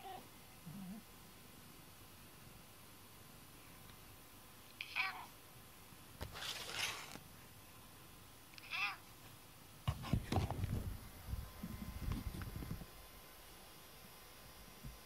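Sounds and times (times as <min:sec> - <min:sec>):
cat meowing: 0:04.8 - 0:05.3, 0:08.6 - 0:09.0
rustling and bumping near microphone: 0:09.8 - 0:12.9.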